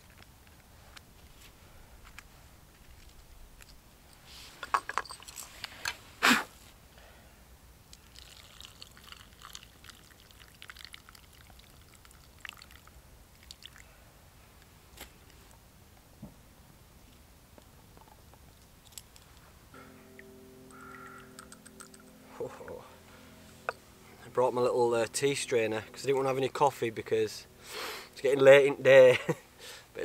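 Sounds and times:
water pouring into wooden cup: 0:08.0 - 0:13.8.

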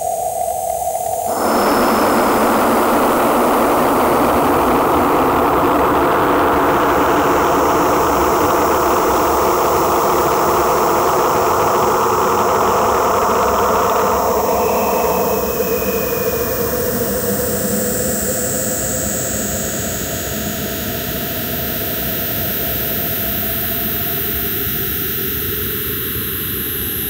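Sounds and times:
steady drone tones: 0:00.0 - 0:19.1.

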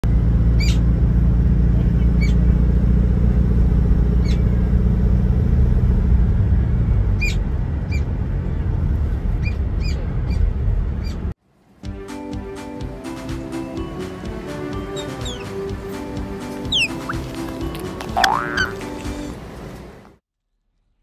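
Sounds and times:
car road rumble: 0:00.0 - 0:11.4, 0:15.7 - 0:20.2
short high chirps: 0:16.7 - 0:17.3.

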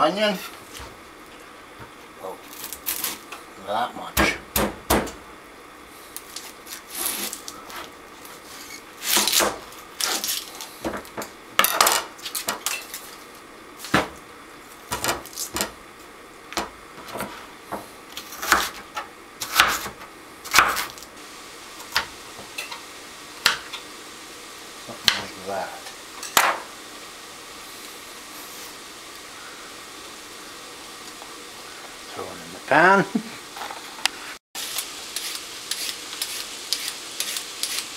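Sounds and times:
knife scraping on board: 0:06.4 - 0:09.4, 0:18.2 - 0:18.8, 0:34.6 - 0:37.9
knife chopping on cutting board: 0:18.4 - 0:18.8, 0:19.4 - 0:20.9.

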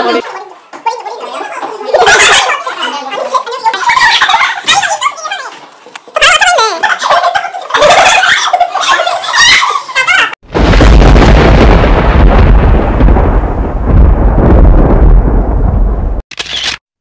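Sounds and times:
girls squealing with laughter: 0:01.9 - 0:10.4
deep rumbling boom: 0:10.4 - 0:16.2.

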